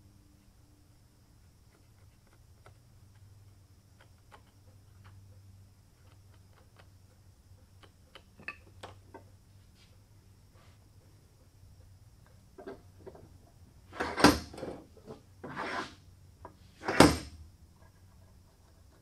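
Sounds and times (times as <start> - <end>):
low steady hum: 0.0 - 19.0
wood clicking on wood: 1.7 - 5.2, 6.0 - 9.3.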